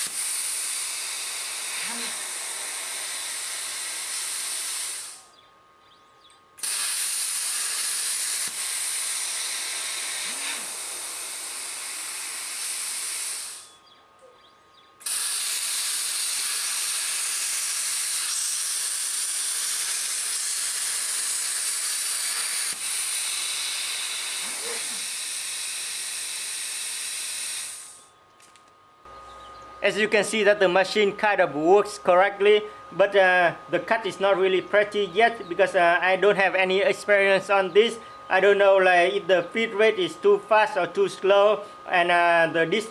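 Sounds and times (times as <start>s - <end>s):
plasma cutter hissing: 0.0s - 5.3s, 6.6s - 13.7s, 15.0s - 28.1s.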